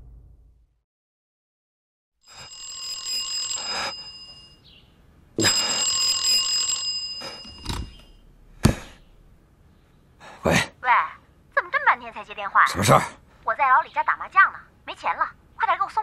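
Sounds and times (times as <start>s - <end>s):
telephone bell ringing: 2.3s - 4.8s, 5.4s - 8.2s
telephone receiver knocks: 7.6s - 8.0s.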